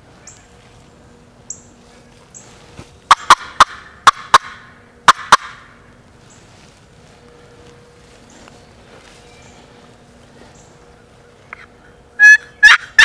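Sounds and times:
turkey call clucks: 3.1s - 5.7s, 11.5s - 13.0s.

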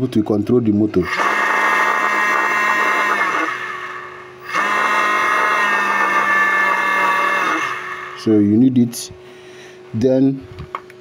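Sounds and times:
electric motor whine: 1.0s - 8.4s.

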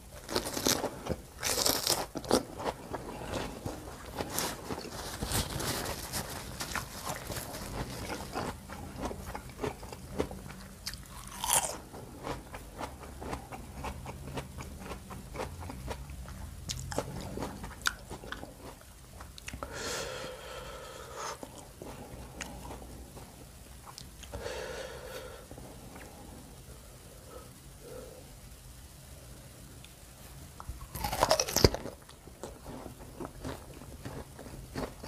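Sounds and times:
crunchy chewing: 0.0s - 19.7s, 21.2s - 24.4s, 30.8s - 35.0s.

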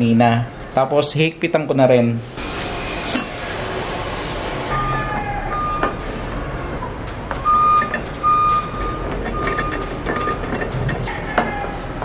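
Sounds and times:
high electronic beep: 4.7s - 6.0s, 7.4s - 10.4s.

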